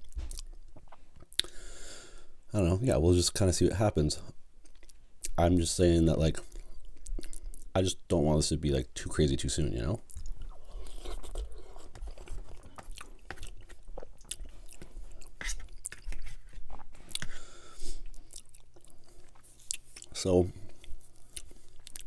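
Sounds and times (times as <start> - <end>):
close chewing with mouth smacks: 10.0 - 17.4, 18.0 - 22.0.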